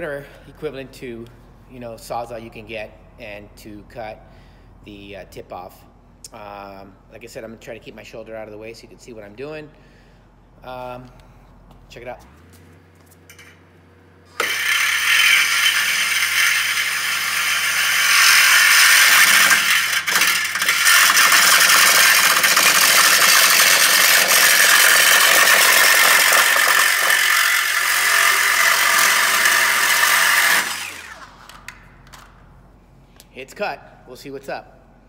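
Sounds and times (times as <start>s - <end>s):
reciprocating saw cutting metal pipe: 14.3s - 31.5s.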